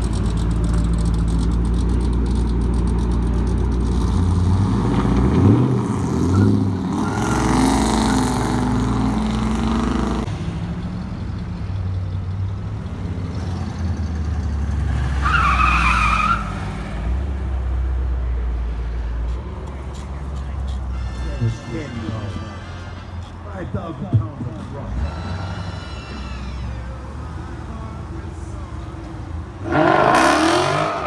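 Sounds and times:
engines idling: 0:00.0 - 0:14.9, 0:16.4 - 0:31.0
tire squeal: 0:06.2 - 0:08.8, 0:13.3 - 0:17.0, 0:20.0 - 0:23.7, 0:24.6 - 0:27.5
car engine revving: 0:29.5 - 0:31.0.

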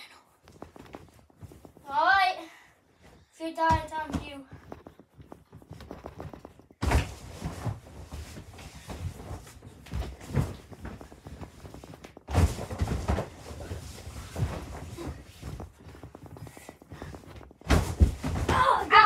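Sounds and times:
rustling of people moving: 0:00.0 - 0:19.0
thumps on an air mattress: 0:03.6 - 0:18.8.

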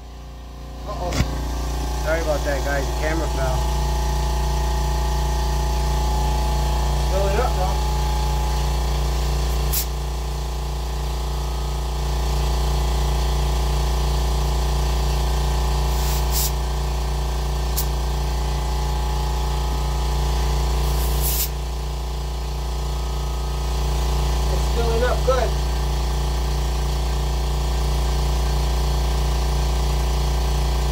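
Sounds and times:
air compressor humming: 0:00.0 - 0:30.9
air hissing at valve: 0:05.8 - 0:13.4, 0:15.7 - 0:24.5.

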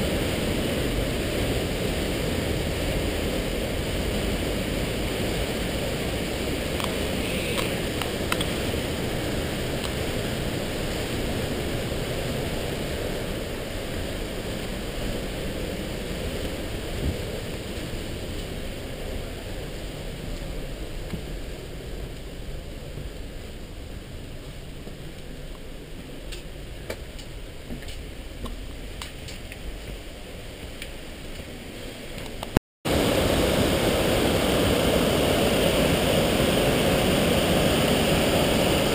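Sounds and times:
mountain stream rushing: 0:00.0 - 0:38.9.

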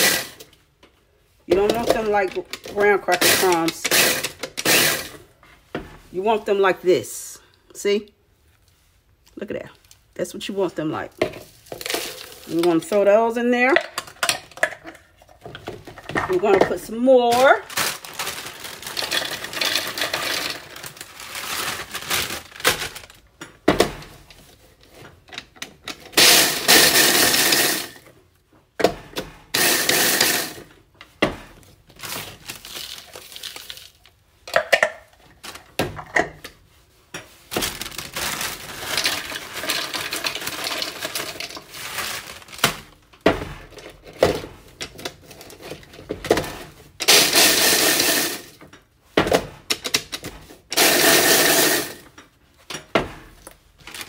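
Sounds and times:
wafers rattling into plastic bowl: 0:01.5 - 0:05.2, 0:11.4 - 0:13.0, 0:15.9 - 0:23.1, 0:26.2 - 0:28.0, 0:29.6 - 0:30.7, 0:37.6 - 0:42.6, 0:47.0 - 0:48.6, 0:50.0 - 0:52.1
plastic bag crinkling: 0:11.4 - 0:13.0, 0:17.2 - 0:23.4, 0:31.9 - 0:34.2, 0:37.5 - 0:43.0
crumbs being tipped out: 0:37.6 - 0:42.9.

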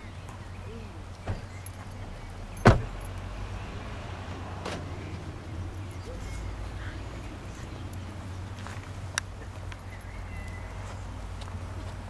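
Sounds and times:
car door slamming: 0:01.2 - 0:01.6, 0:02.6 - 0:03.1.

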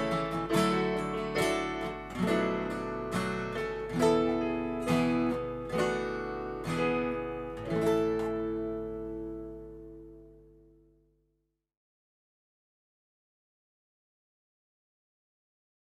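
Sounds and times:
electronic keyboard: 0:00.0 - 0:10.5
acoustic guitar strumming chords: 0:00.0 - 0:11.0.

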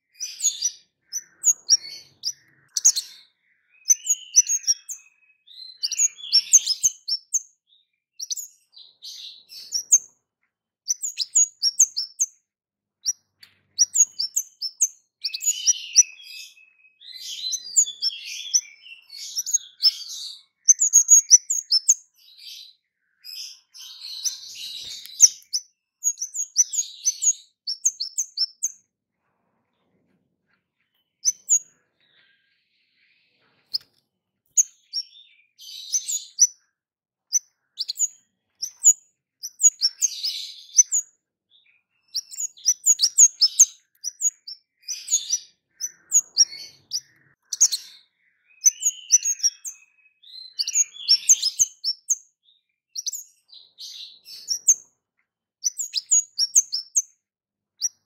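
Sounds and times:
songbird chirping: 0:00.0 - 0:58.0.

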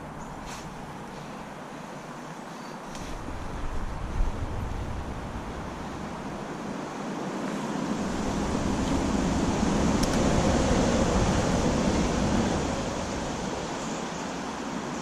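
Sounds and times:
wind on microphone: 0:03.0 - 0:06.9, 0:07.5 - 0:15.0.

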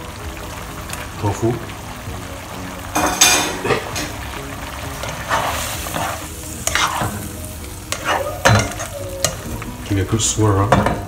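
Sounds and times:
sauce cooking: 0:00.0 - 0:11.0
spatula scraping wok: 0:04.9 - 0:10.0.

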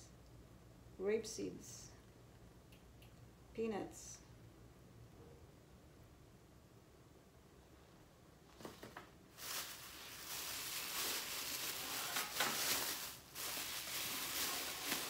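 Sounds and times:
plastic bag rustling and crinkling: 0:08.6 - 0:15.0.

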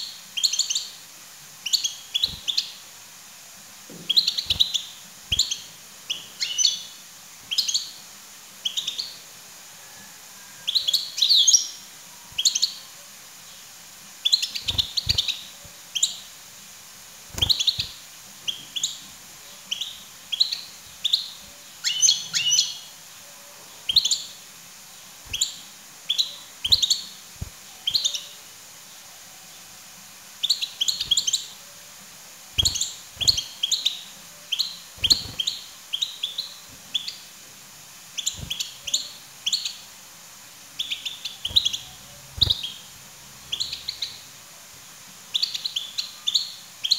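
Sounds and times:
goldfinch twittering chirps: 0:04.1 - 0:06.9, 0:14.2 - 0:16.3, 0:17.3 - 0:19.0, 0:19.7 - 0:22.9, 0:23.9 - 0:24.4, 0:25.3 - 0:28.4, 0:30.4 - 0:31.6, 0:32.6 - 0:37.2, 0:40.8 - 0:42.9, 0:43.5 - 0:44.3.

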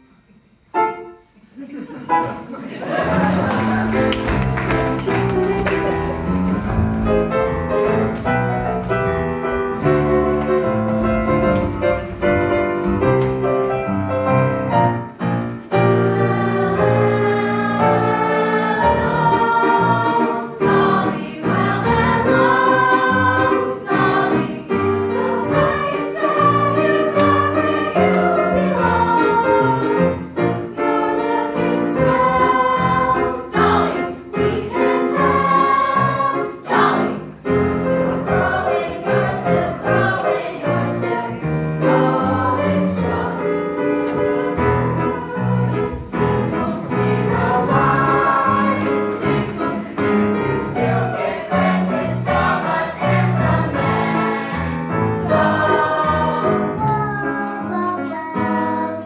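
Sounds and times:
musical accompaniment: 0:00.0 - 0:59.0
youth choir singing: 0:15.7 - 0:56.9.

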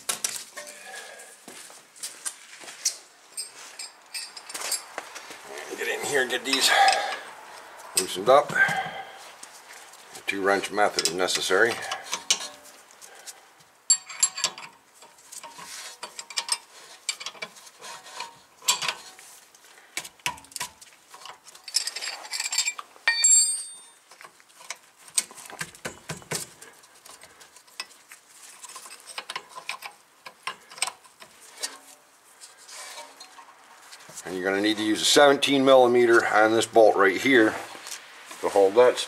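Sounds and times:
wrenches clinking on metal bolts: 0:03.4 - 0:04.9, 0:05.9 - 0:07.3, 0:10.6 - 0:12.7, 0:13.9 - 0:19.2, 0:20.2 - 0:26.5, 0:27.6 - 0:32.0.

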